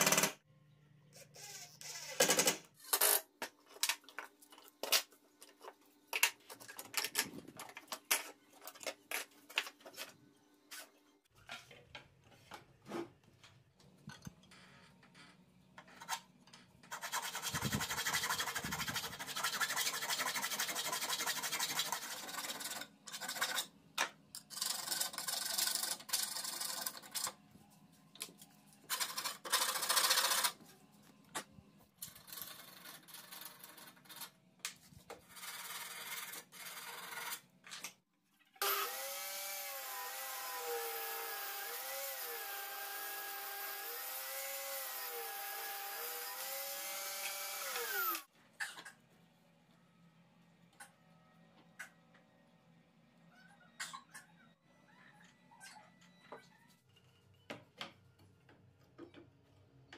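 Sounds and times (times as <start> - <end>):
hand file rasping on metal: 16.9 - 23.7.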